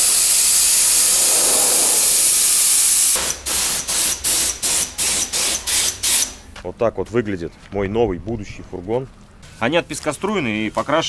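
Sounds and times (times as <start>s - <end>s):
hissing air jet: 0.0s - 6.4s.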